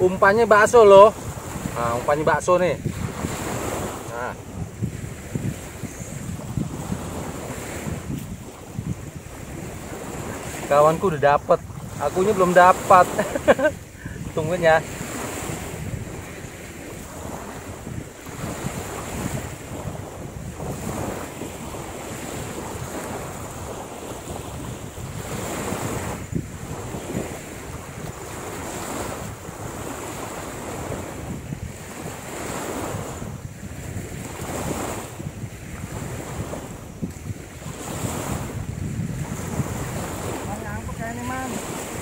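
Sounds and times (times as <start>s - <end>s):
small waves washing ashore: 0.0s - 42.0s
wind buffeting microphone: 0.0s - 42.0s.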